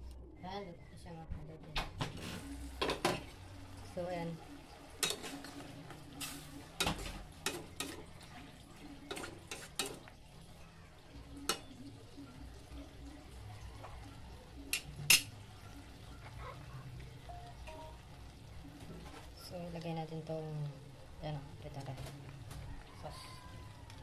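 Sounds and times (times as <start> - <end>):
metal spatula scraping a pot: 5.0 - 8.3, 9.0 - 10.1.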